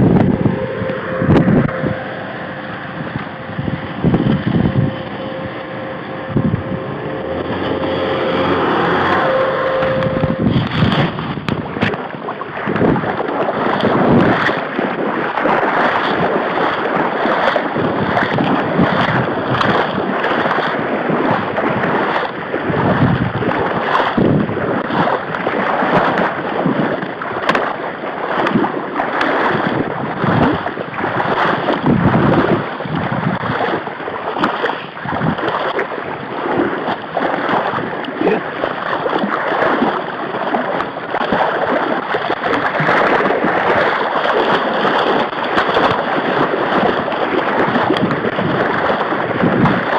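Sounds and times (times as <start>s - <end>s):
vehicle engine hum: 0.0s - 12.0s
splashing through water: 0.0s - 49.9s.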